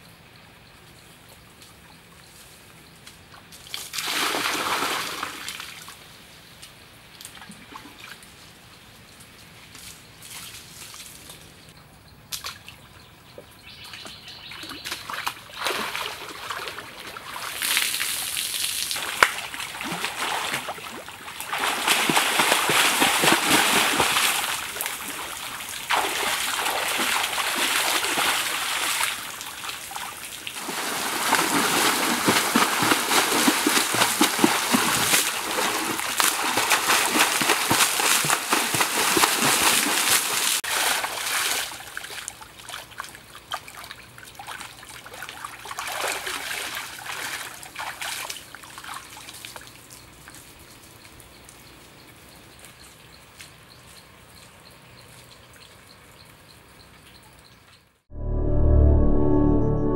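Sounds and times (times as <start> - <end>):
person swimming and splashing: 4.0 - 5.5, 14.6 - 49.6.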